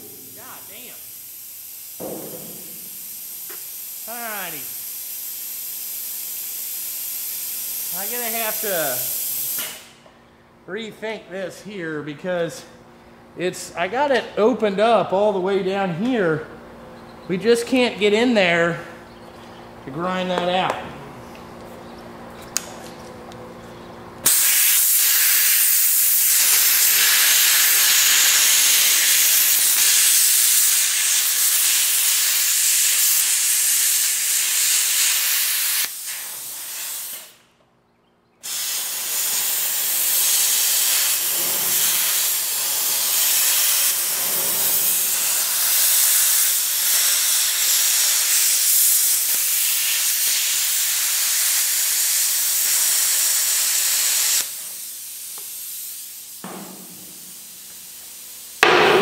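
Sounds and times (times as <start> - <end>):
plasma cutter hissing: 0.0 - 9.9, 24.2 - 37.4, 38.4 - 59.0.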